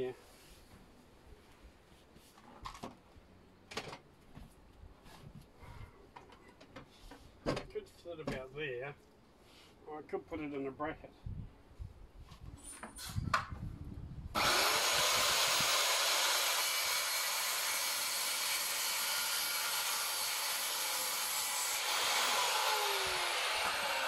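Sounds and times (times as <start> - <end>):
circular saw cutting wood: 14.4 - 24.0.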